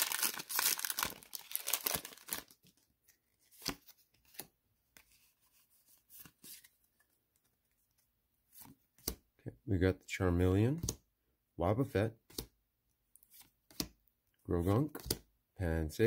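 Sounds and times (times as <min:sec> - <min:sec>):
foil wrapper tearing and crinkling: 0:00.0 - 0:02.6
cards clicking and rustling: 0:00.0 - 0:04.5.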